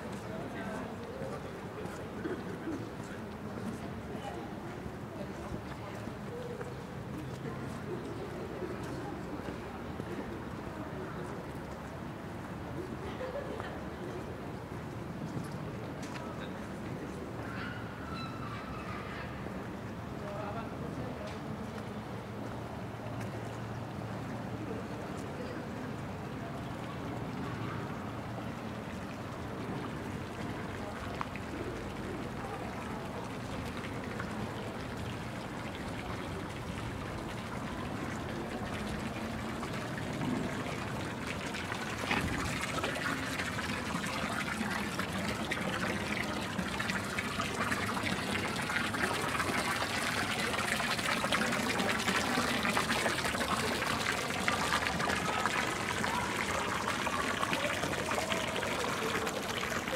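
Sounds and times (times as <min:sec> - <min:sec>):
water trickling and splashing: 0:25.9 - 0:59.9.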